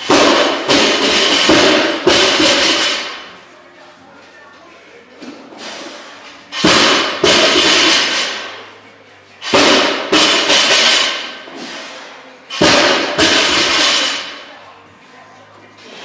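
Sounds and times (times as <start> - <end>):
barbell crashing on concrete: 0.0 - 3.3, 6.5 - 8.6, 9.4 - 11.4, 12.5 - 14.4.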